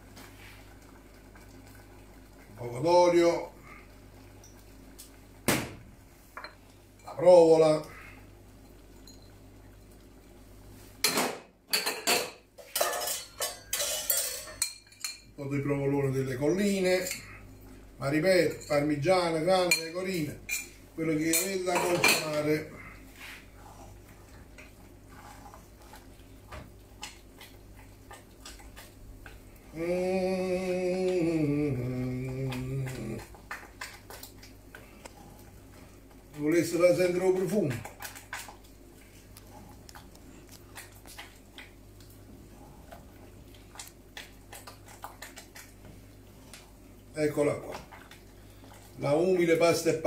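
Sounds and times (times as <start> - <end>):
spoon scraping and clinking on pans: 11.7 - 15.3
wooden spoon stirring in pot: 16.2 - 50.0
man humming: 29.6 - 33.4.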